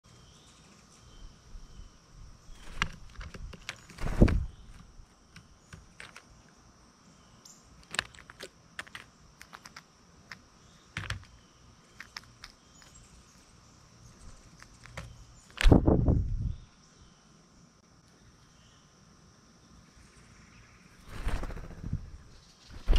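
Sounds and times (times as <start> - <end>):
peanut shells clicking on tray: 7.8 - 11.4, 12.0 - 13.0
bird landing thump: 15.6 - 16.2.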